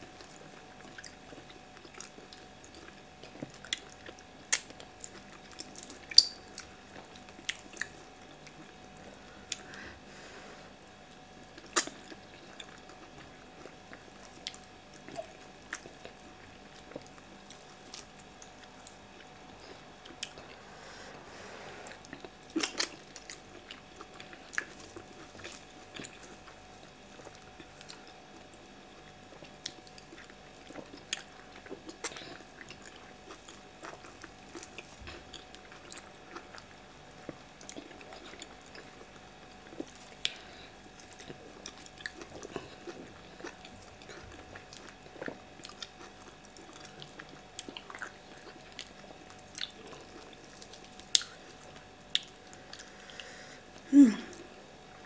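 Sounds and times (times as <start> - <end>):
people chewing: 0.1 - 55.0.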